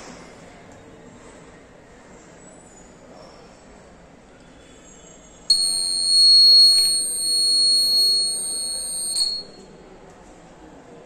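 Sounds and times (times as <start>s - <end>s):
high-pitched buzzer beep: 5.5s - 9.6s.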